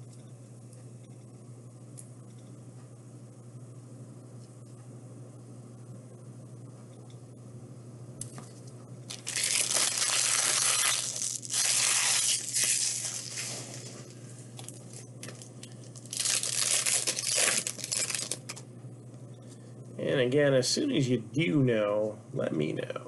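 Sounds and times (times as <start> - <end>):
steady low hum: 0.0 - 23.0
wrapper tearing and crinkling: 9.1 - 14.1, 15.4 - 18.6.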